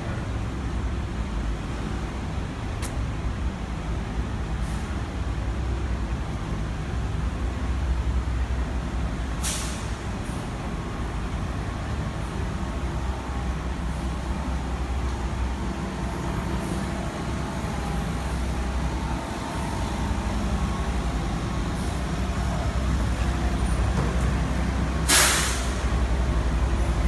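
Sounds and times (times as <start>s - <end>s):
truck engine idling: 3.6s - 27.0s
short loud hiss: 9.4s - 10.0s, 25.0s - 25.9s.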